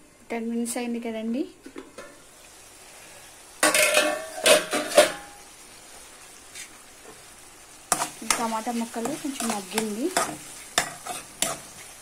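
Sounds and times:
curry simmering hiss: 0.0 - 12.0
pan lid clattering: 3.6 - 5.3.

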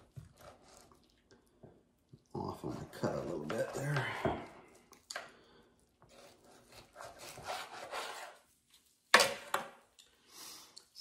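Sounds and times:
knife sawing through ribs: 6.1 - 8.5.

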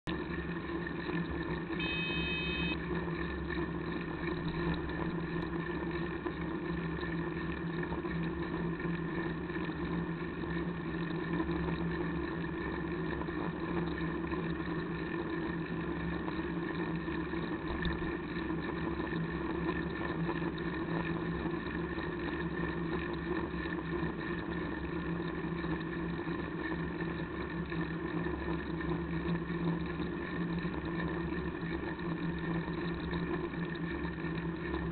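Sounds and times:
constant hum: 0.0 - 34.9
short high ringing tone: 1.8 - 2.9.

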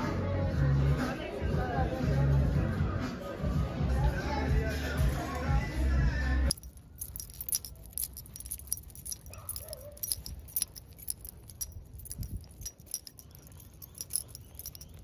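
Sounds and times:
small objects clinking and jangling: 6.5 - 15.0.

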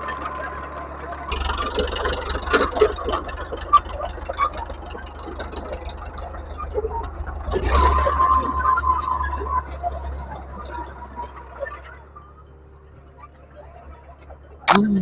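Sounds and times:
tractor engine running: 0.0 - 15.0.

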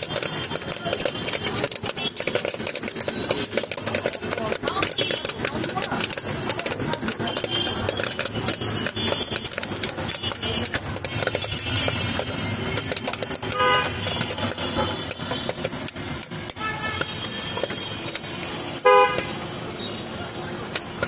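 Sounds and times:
busy street noise: 0.0 - 21.0
scattered clicks and knocks: 0.0 - 21.0
vehicle horn toots: 13.4 - 15.5, 16.5 - 18.1, 18.8 - 20.0.

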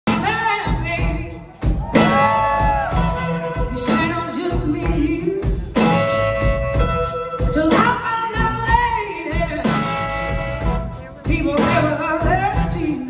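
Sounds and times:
blues-rock band with horns: 0.0 - 13.0
woman singing: 0.1 - 2.1, 3.6 - 5.9, 7.4 - 10.0, 11.2 - 13.0.

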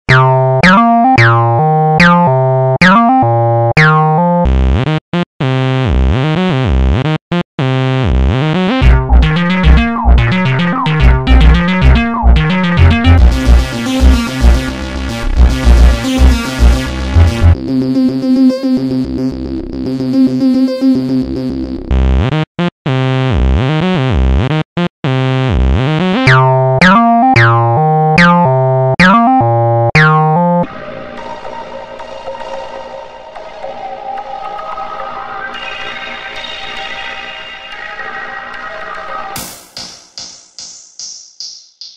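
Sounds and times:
electronic bass music: 0.1 - 30.7
heavy bass thumps and drums: 8.8 - 17.6
synth chord stabs: 8.8 - 17.6.

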